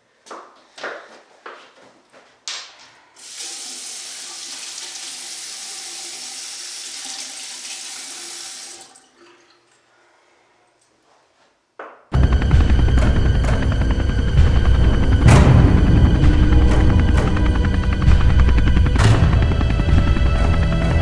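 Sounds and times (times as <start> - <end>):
tap water running into sink: 3.2 - 9.8.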